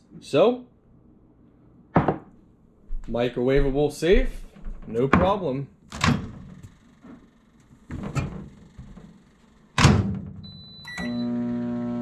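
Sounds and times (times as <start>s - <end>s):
knocks and clunks of handling: 4.5s - 7.2s, 7.8s - 9.2s.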